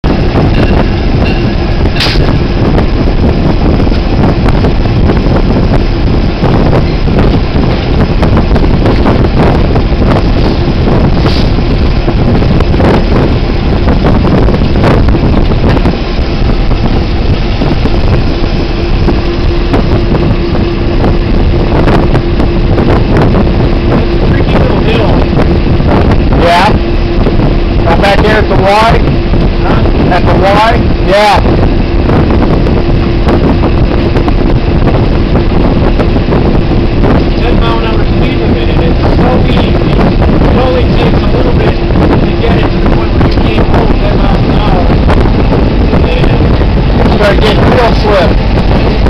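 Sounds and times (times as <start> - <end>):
locomotive engine and wheels rumble: 0.0 - 49.0
steady hum: 0.0 - 49.0
wind buffeting microphone: 0.0 - 49.0
rail clicks: 0.4 - 3.0.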